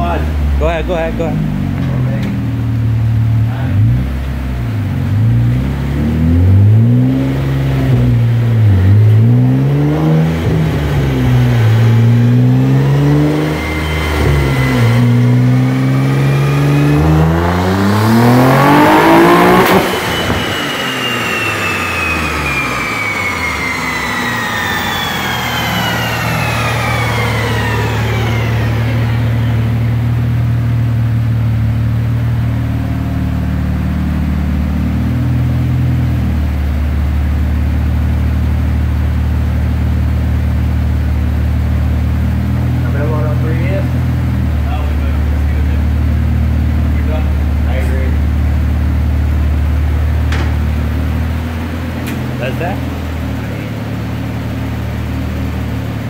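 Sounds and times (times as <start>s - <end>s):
engine idling: 0.0s - 5.9s, 20.0s - 56.0s
car engine revving: 0.0s - 56.0s
falling whine of rollers: 7.9s - 30.3s.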